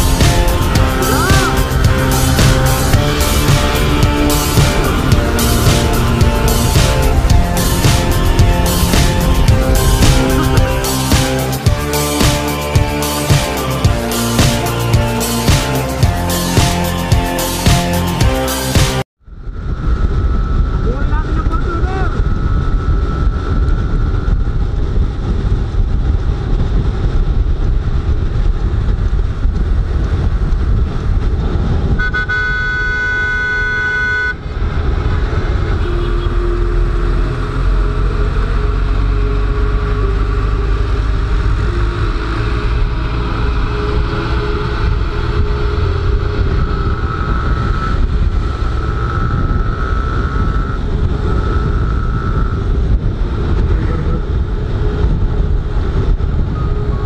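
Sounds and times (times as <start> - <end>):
motorcycle engine running: 0.0 - 20.6
wind buffeting microphone: 19.2 - 32.6, 44.0 - 57.0
vehicle horn blast: 32.0 - 34.4, 35.7 - 37.4.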